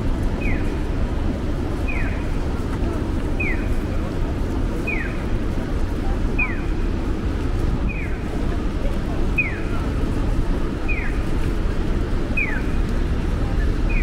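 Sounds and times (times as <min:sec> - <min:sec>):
city traffic: 0:00.0 - 0:14.0
crossing signal chirping: 0:01.8 - 0:02.4, 0:09.4 - 0:09.8.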